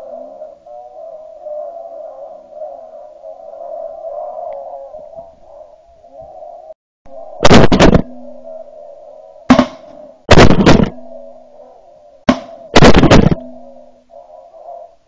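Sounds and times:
loud shotgun shots: 0:07.4 - 0:08.2, 0:09.5 - 0:11.0, 0:12.3 - 0:13.6.

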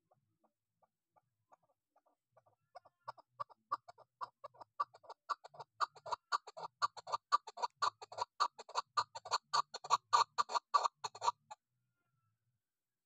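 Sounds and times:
partridge calling: 0:01.6 - 0:11.6.

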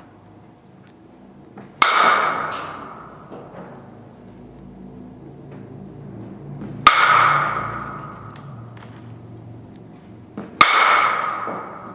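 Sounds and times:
bat cracking a softball: 0:01.6 - 0:03.5, 0:06.6 - 0:08.7, 0:10.4 - 0:11.9.

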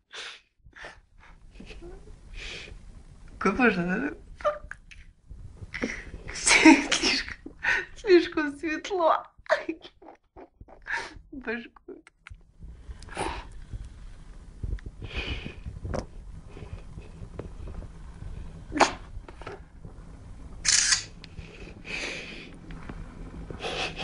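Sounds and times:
phone microphone handling rumble: 0:12.4 - 0:24.0
short breathy hisses: 0:20.7 - 0:21.1.

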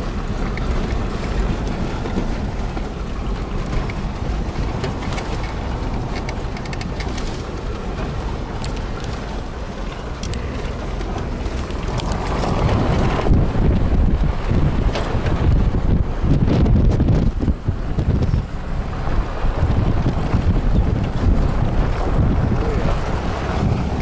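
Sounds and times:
engine and tyre rumble: 0:00.0 - 0:24.0
rattles and knocks: 0:00.3 - 0:15.7.

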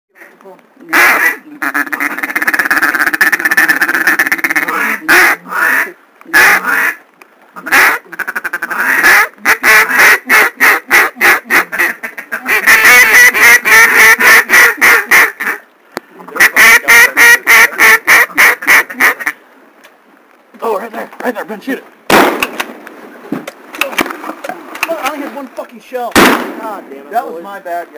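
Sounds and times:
duck call quacking: 0:00.9 - 0:07.0, 0:07.6 - 0:15.6, 0:16.4 - 0:19.4.

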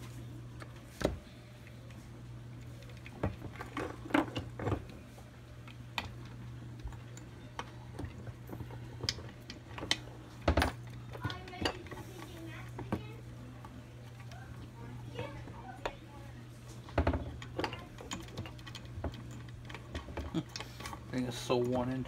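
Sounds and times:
steady low hum: 0:00.0 - 0:22.0
metal parts clinking and knocking: 0:16.9 - 0:21.9.

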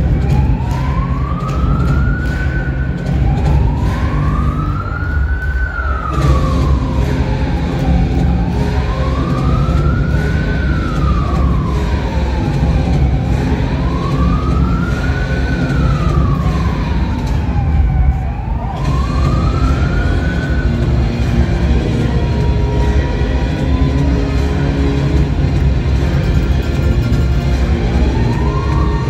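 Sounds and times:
siren wailing: 0:00.0 - 0:29.0
steady low rumble: 0:18.8 - 0:28.9.

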